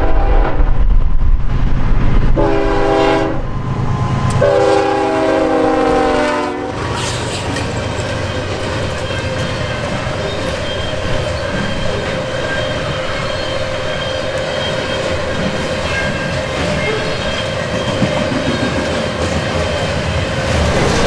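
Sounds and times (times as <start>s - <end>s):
locomotive air horn: 0.0s - 0.6s, 2.4s - 3.4s, 4.3s - 6.9s
train cars rumbling and clattering: 0.0s - 21.0s
locomotive engine rumbling: 1.2s - 21.0s.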